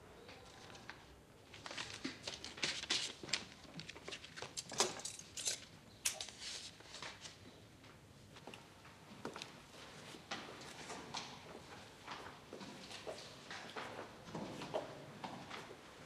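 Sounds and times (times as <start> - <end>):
paper sheets rustling: 0.5 - 4.7, 6.1 - 7.4.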